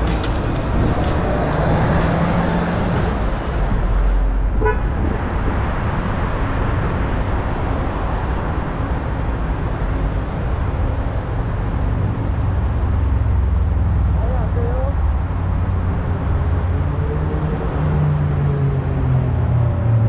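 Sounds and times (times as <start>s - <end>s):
low rumble of road traffic: 0.0s - 20.0s
short horn toot: 4.6s - 4.8s.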